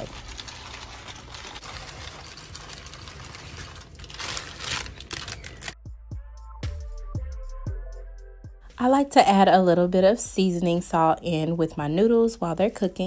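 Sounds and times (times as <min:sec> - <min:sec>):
pasta rattling: 0:00.0 - 0:05.8
plastic bag crinkling: 0:00.0 - 0:05.8
music with a steady beat: 0:05.8 - 0:08.7.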